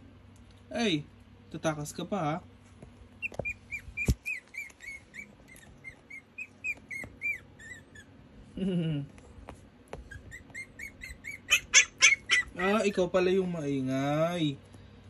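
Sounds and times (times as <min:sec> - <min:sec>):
puppy whining in high squeaks: 0:03.2 - 0:08.2, 0:10.0 - 0:12.9.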